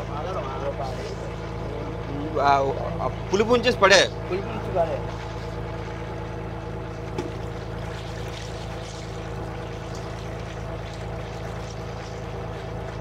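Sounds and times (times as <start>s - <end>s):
boat engine running: 0.0s - 13.0s
liquid sloshing as hand mixes: 4.6s - 13.0s
liquid pouring into pot: 5.0s - 13.0s.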